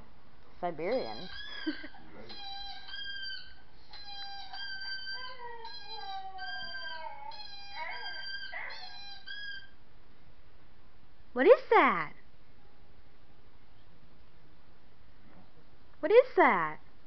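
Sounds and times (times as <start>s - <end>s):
dog howling and whining: 1.0s - 9.8s.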